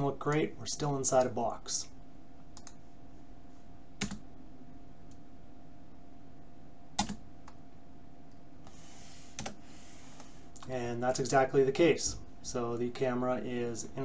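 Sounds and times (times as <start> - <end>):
low room and equipment hum: 0.0 - 14.0
sharp computer clicks: 2.6 - 2.8, 4.0 - 4.2, 7.0 - 7.6, 9.4 - 9.6.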